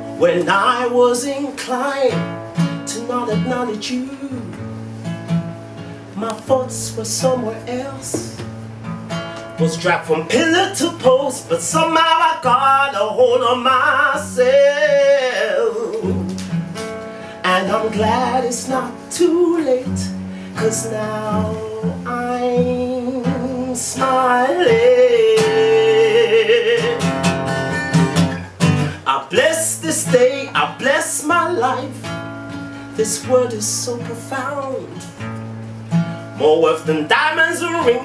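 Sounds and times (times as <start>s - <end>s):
acoustic guitar: 0.0s - 38.0s
man singing: 0.2s - 4.7s, 6.1s - 8.5s, 9.6s - 16.6s, 17.4s - 27.5s, 28.9s - 35.2s, 36.3s - 38.0s.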